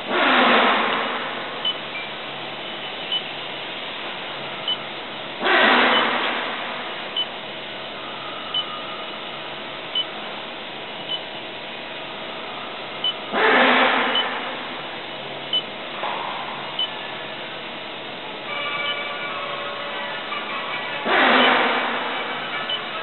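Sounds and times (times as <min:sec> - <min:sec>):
loud rushing burst: 0:00.0 - 0:01.7, 0:05.4 - 0:07.2, 0:13.3 - 0:15.2, 0:21.0 - 0:22.6
short high beeps: 0:08.5 - 0:09.0, 0:13.9 - 0:14.5, 0:21.1 - 0:21.8, 0:22.5 - 0:22.9
machine motor hum: 0:21.0 - 0:23.0.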